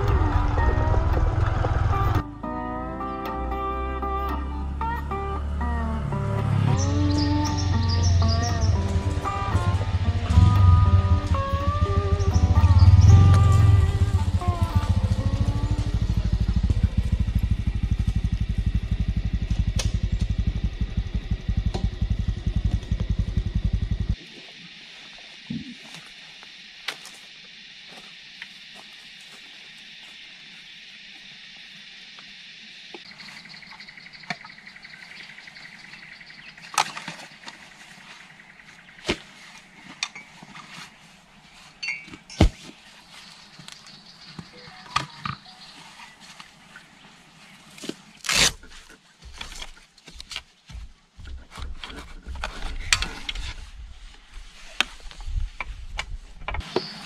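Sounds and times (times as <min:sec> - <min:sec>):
motorcycle engine idling: 0:00.0 - 0:02.3, 0:05.4 - 0:24.2
high-pitched hiss: 0:24.2 - 0:36.2.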